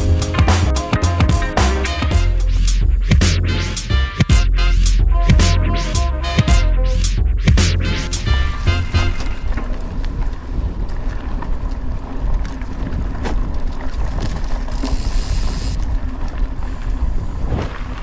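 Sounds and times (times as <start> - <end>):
wind rumble on microphone: 8.2 - 18.0
bicycle hub ratchet ticking: 14.7 - 15.8.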